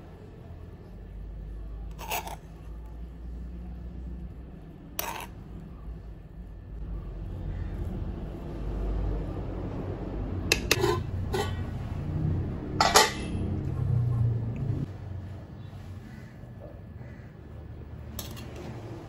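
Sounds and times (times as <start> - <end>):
spoon stirring rice: 1.9 - 2.8, 5.0 - 5.4, 10.5 - 11.7.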